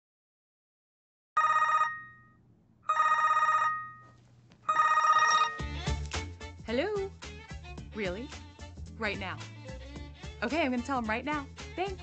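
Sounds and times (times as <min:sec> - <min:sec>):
cell phone ringing: 0:01.4 - 0:05.8.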